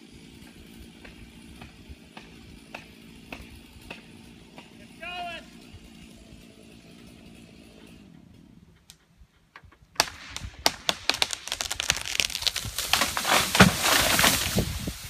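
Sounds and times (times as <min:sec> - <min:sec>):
wood and branches snapping: 0:09.6 - 0:15.0
tree trunk cracking: 0:10.0 - 0:15.0.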